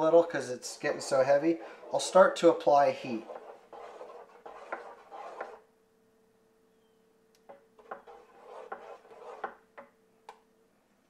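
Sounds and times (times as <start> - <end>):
spoon scraping a pot: 1.0 - 5.6, 7.5 - 9.6.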